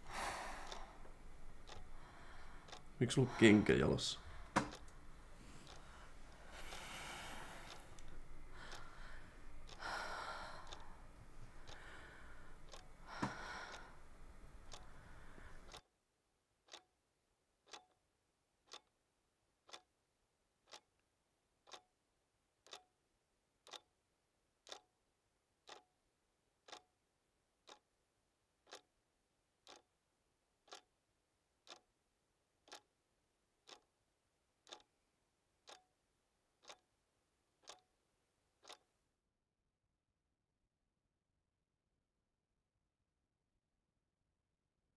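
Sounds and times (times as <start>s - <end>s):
clock ticking: 0.6s - 15.9s, 16.6s - 17.0s, 17.6s - 18.0s, 18.6s - 19.0s, 19.6s - 19.9s, 20.6s - 21.0s, 21.6s - 22.0s, 22.6s - 23.0s, 23.6s - 24.0s, 24.6s - 25.0s, 25.6s - 26.0s, 26.6s - 27.0s, 27.6s - 27.9s, 28.6s - 28.9s, 29.6s - 29.9s, 30.6s - 30.9s, 31.6s - 31.9s, 32.6s - 32.9s, 33.6s - 33.9s, 34.6s - 35.0s, 35.6s - 36.0s, 36.6s - 36.9s, 37.6s - 37.9s, 38.6s - 38.9s.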